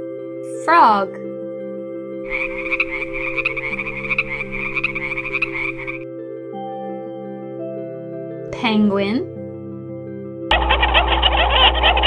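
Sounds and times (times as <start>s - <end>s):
frog croaking: 2.3s - 6.0s, 10.5s - 12.0s.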